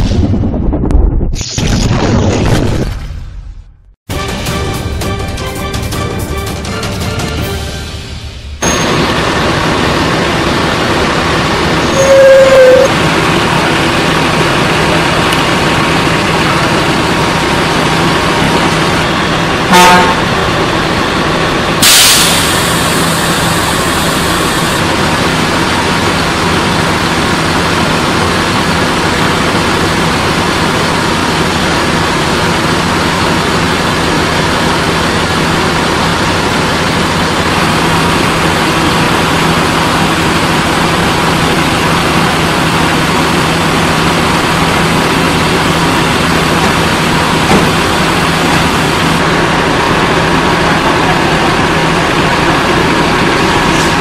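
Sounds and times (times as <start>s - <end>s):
horn blast: 11.9s - 13.0s, 19.7s - 20.4s
diesel engine idling: 12.9s - 54.0s
air brake hiss: 21.8s - 24.0s.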